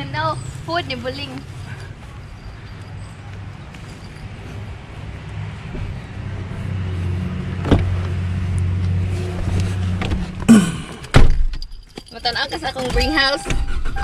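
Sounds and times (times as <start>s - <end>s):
car door thumping shut: 7.6s - 8.0s, 11.1s - 11.6s.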